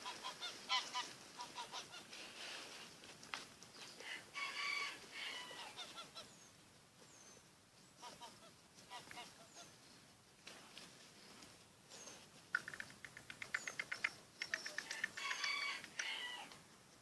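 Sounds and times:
faint bird chirps: 11.9 - 15.6.

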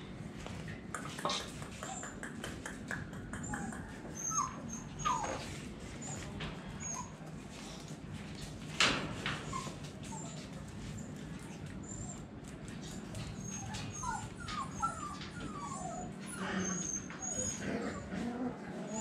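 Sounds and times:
puppies whimpering: 3.4 - 7.2, 11.8 - 19.0.

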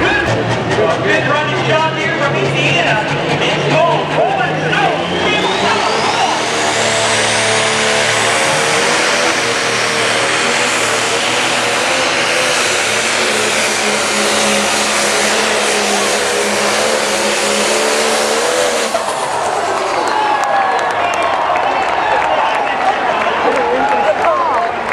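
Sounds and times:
diesel engine at full throttle: 0.0 - 24.9
turbo whine: 4.1 - 19.8.

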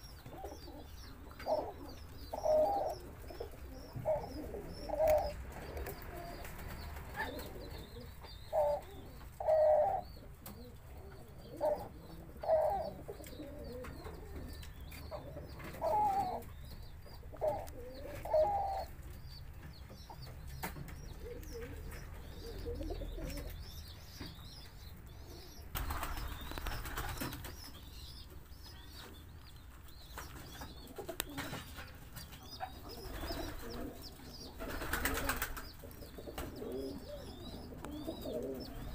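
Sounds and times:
doves cooing: 0.0 - 29.3, 29.9 - 38.9
faint high chirping: 20.0 - 38.9.

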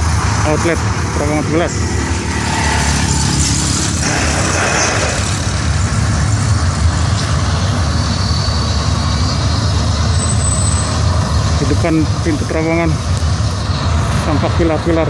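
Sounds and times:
heavy vehicle engines rumbling: 0.0 - 15.0.

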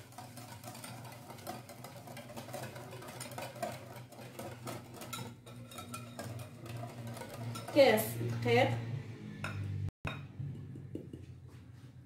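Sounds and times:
whisk beating batter in a bowl: 0.0 - 8.8.

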